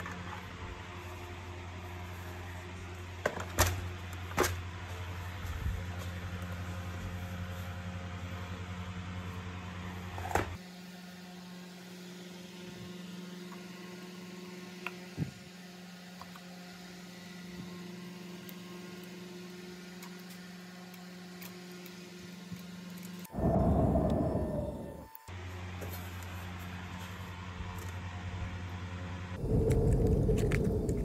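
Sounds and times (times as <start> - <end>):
low electrical hum: 18.6 - 31.0.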